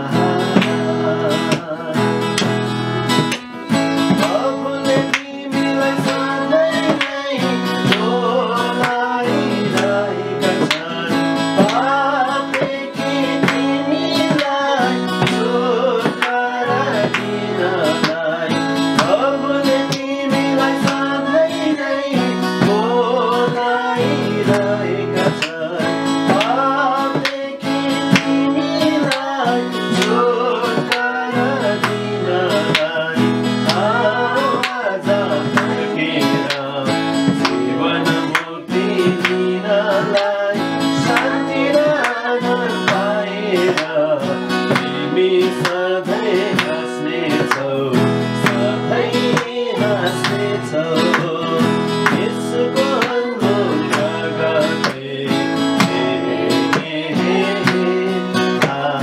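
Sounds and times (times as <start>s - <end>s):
family singing worship song: 0.0s - 2.6s, 3.9s - 59.0s
hand drum rhythm: 0.0s - 59.0s
strummed acoustic guitar: 0.0s - 59.0s.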